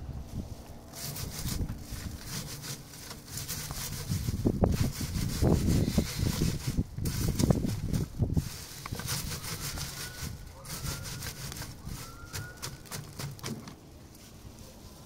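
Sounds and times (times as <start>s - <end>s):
seed heads rubbed against wire mesh: 0.3s - 13.6s.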